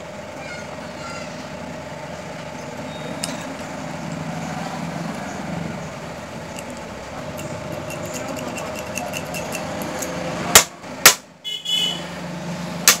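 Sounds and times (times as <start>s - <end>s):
steady background hum: 0.0s - 11.5s
sharp metal knocks: 6.5s - 11.3s.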